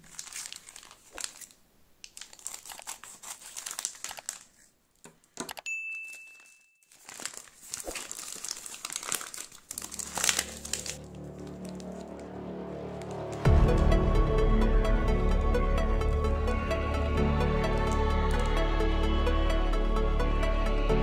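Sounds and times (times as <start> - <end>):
plastic mailer bag crinkling and tearing: 0.0 - 4.7, 6.4 - 12.3
plastic bag rustling: 0.0 - 4.8, 6.1 - 13.4.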